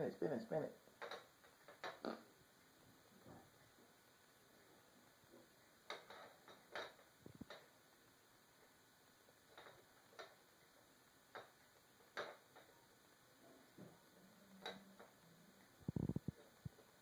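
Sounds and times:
spinner toy clicks on wooden floor: 1.0s - 2.1s, 5.8s - 7.7s, 9.3s - 12.8s, 14.4s - 15.2s.

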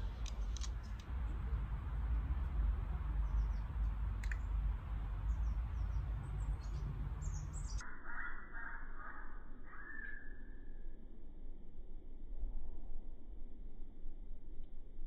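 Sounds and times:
wind rumble on microphone: 0.0s - 7.8s
bird chirps: 3.2s - 4.5s, 5.3s - 10.9s.

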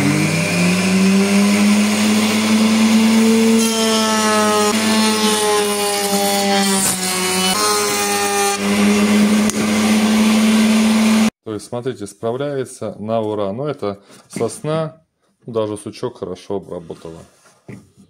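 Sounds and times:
router cutting wood whine: 0.0s - 11.3s
router motor running: 0.0s - 11.3s.

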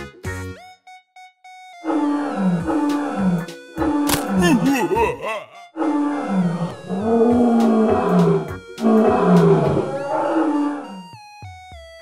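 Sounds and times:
dinosaur roar sound effect: 5.8s - 11.0s.

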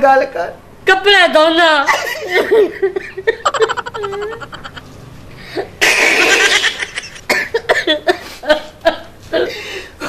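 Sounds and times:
men fake sobbing and wailing: 3.3s - 4.8s.

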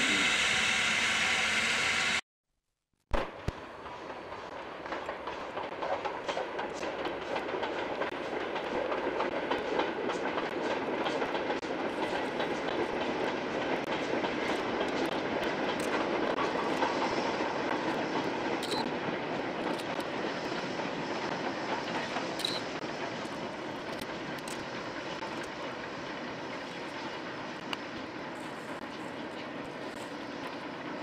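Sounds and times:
steam train running: 0.0s - 2.2s, 3.6s - 31.0s.

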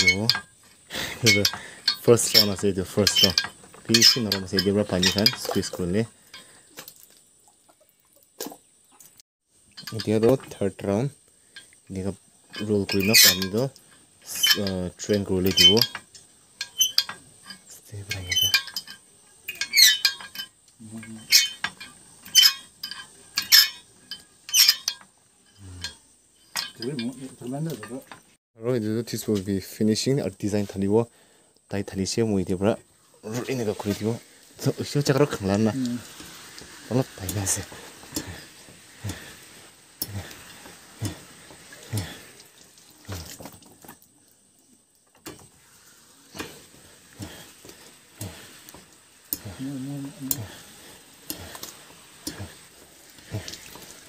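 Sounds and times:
rollers clattering: 0.0s - 6.5s, 11.6s - 28.4s, 33.4s - 42.4s
water splashing and dripping: 1.0s - 10.7s, 33.2s - 54.0s.

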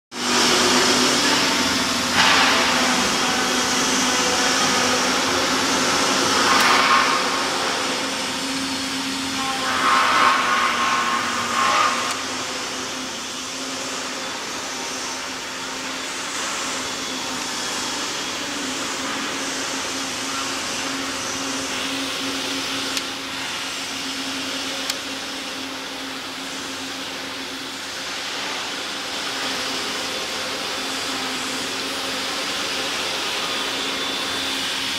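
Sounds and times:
workshop machinery humming: 0.1s - 34.9s.

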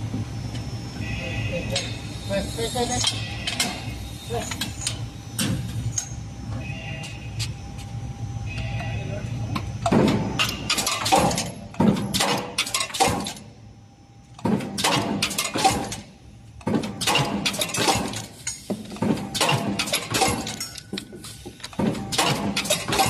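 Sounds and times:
forging press metallic clanks: 14.4s - 20.9s, 21.7s - 23.0s.

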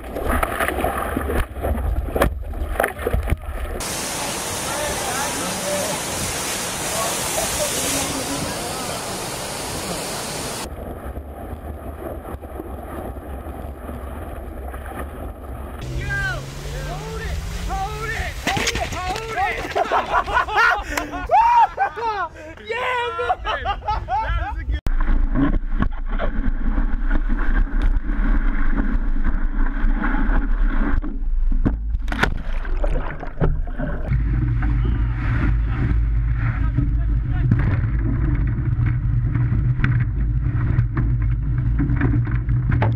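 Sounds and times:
rushing water hiss: 3.8s - 10.7s, 15.8s - 20.0s.

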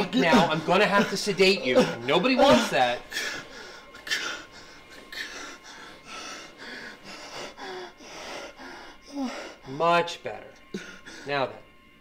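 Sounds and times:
man breathing hard: 1.7s - 9.9s, 10.6s - 11.4s.

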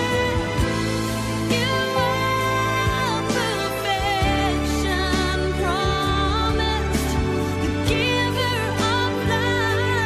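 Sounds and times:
person singing: 0.0s - 10.0s
sustained instrumental accompaniment: 0.0s - 10.0s.

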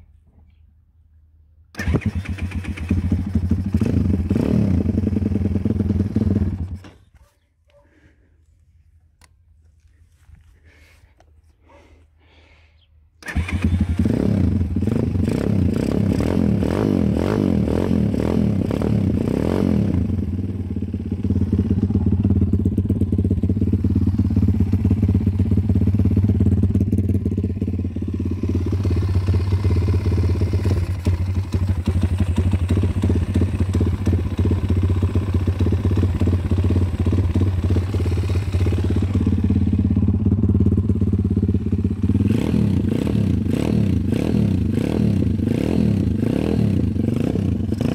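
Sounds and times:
motorbike engine idling: 20.0s - 44.7s.

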